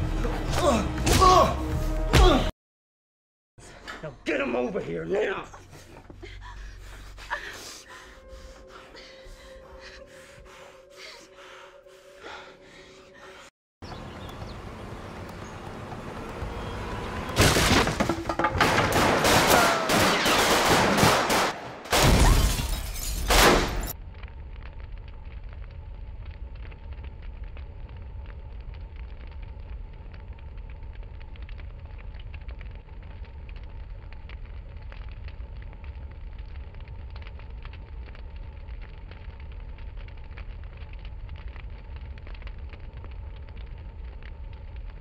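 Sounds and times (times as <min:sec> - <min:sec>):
low hiss with faint crackle: 0:24.0 - 0:45.0.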